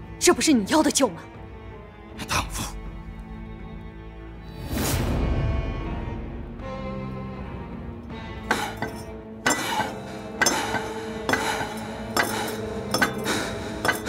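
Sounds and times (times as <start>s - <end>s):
quiet background music: 0.0s - 14.0s
metal wheel clanking and scraping: 8.5s - 14.0s.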